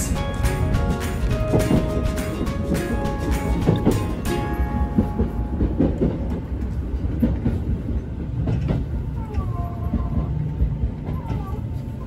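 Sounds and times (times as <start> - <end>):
wheel clacks over rail joints: 0.0 - 7.6
train rumbling: 0.0 - 12.0.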